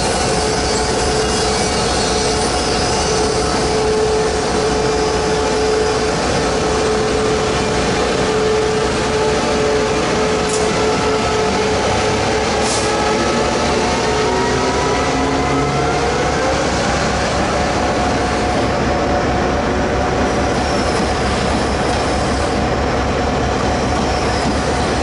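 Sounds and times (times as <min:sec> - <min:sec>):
electric train whine passing: 0:00.0 - 0:25.0.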